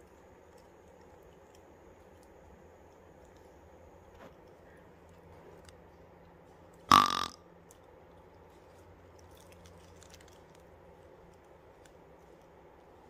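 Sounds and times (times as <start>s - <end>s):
faint outdoor background: 0.0s - 13.0s
burp-like grunt: 6.9s - 7.4s.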